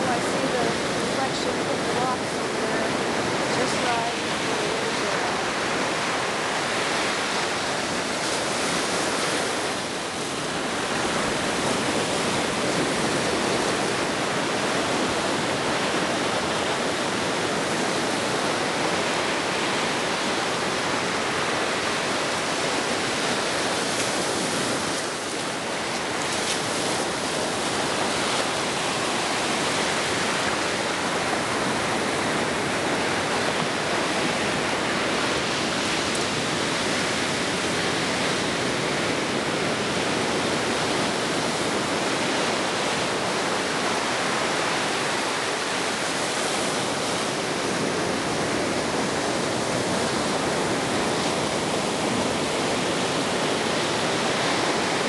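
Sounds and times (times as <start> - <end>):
ocean surf breaking: 0.0 - 55.0.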